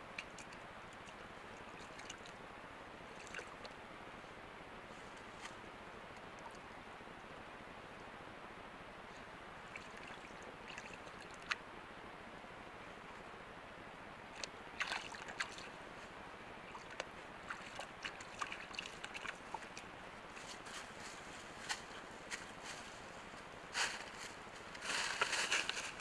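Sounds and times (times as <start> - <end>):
microphone hiss: 0.0 - 26.0
deer stepping through dry leaves: 20.3 - 26.0.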